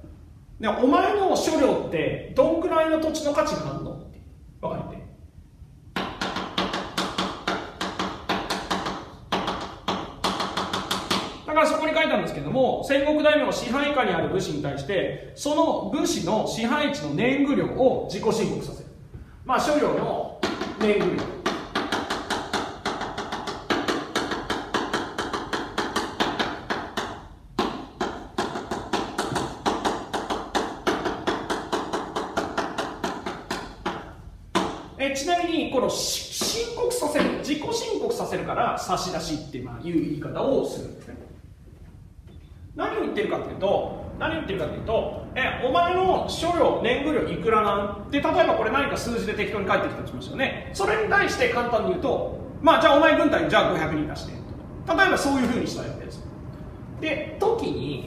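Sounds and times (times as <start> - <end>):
chalk tapping on blackboard: 5.9 - 11.4, 20.4 - 34.9.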